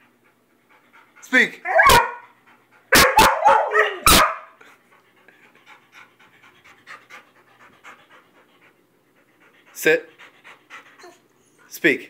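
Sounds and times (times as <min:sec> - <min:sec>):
dogs panting: 0:00.0 - 0:03.8, 0:04.5 - 0:12.0
dogs barking sharply: 0:01.7 - 0:02.2, 0:02.9 - 0:04.6.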